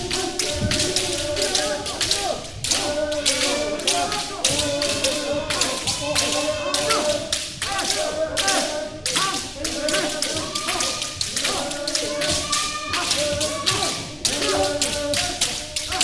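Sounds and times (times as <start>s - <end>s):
people shouting: 0.0s - 16.0s.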